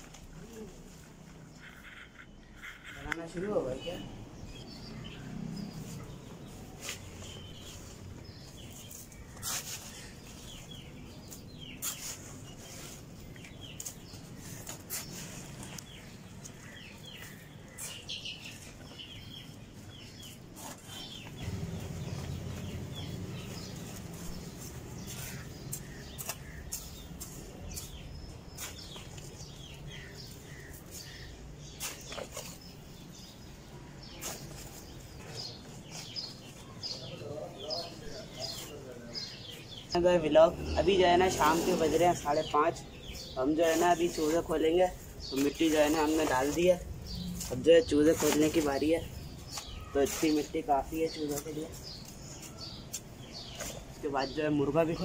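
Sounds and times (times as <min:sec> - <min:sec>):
soil rustling on concrete floor: 0:00.0 - 0:55.0
chicks cheeping: 0:04.6 - 0:44.3.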